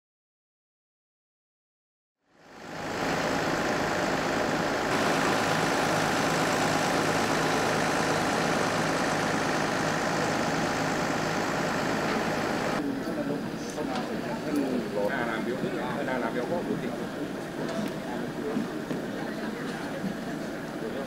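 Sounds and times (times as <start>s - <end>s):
engine idling: 2.4s - 12.8s.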